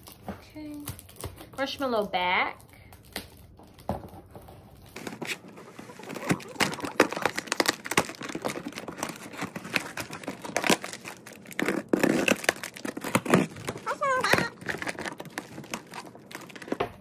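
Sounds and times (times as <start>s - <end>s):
cardboard crinkling and tearing: 3.0s - 17.0s.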